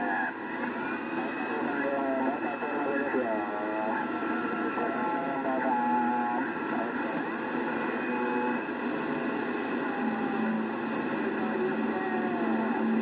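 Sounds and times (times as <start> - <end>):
faint garbled radio voices: 0.0 - 13.0
radio static noise: 0.0 - 13.0.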